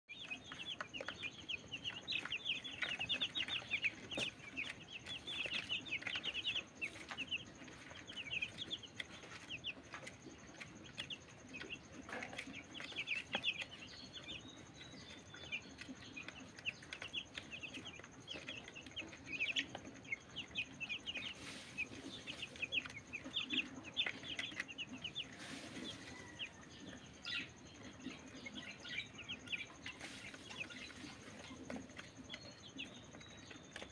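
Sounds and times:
beaks pecking plastic tray: 0.1 - 25.6
chicks peeping: 0.1 - 33.9.

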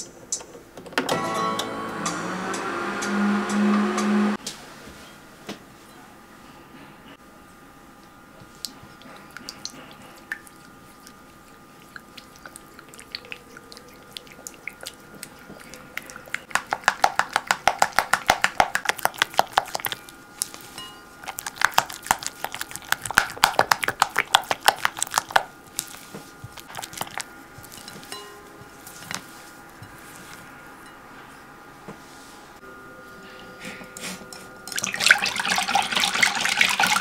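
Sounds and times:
faint steady hum: 0.0 - 37.0
spatula slapping thick chocolate: 14.2 - 20.6, 21.2 - 27.8.

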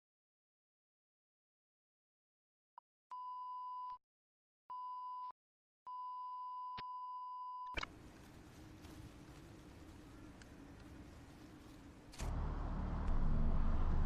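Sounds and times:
faint hiss with low hum: 7.9 - 12.1.

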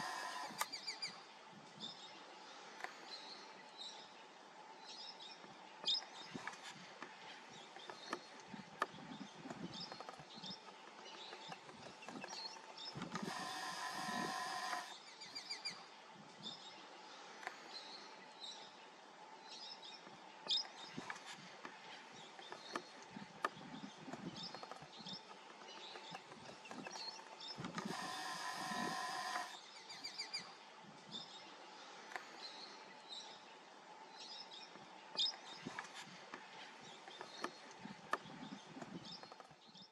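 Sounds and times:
camera zoom motor whir: 0.0 - 1.0, 12.2 - 15.5, 26.7 - 30.2.

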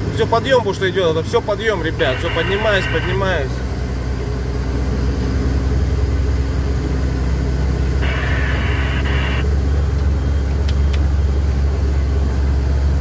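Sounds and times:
truck diesel engine labouring: 0.0 - 13.0
brief higher-pitched noise: 8.0 - 9.5.

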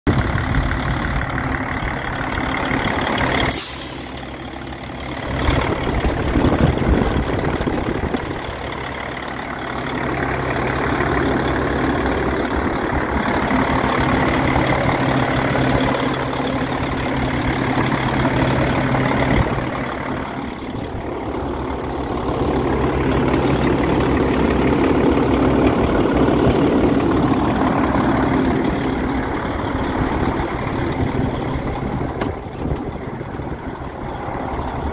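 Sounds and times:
diesel truck engine idling: 0.1 - 34.9
brief sharp hiss: 3.5 - 4.3.

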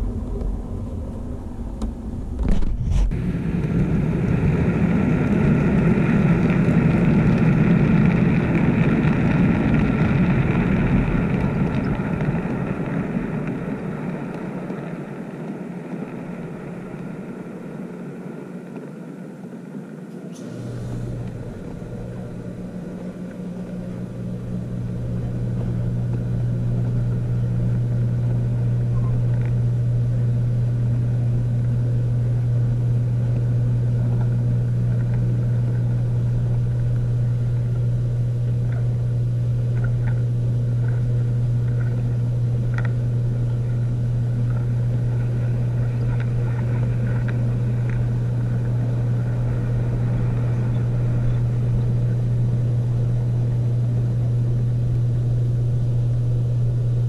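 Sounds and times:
model train hum and rumble: 0.0 - 57.0
faint clicks: 39.7 - 52.2.

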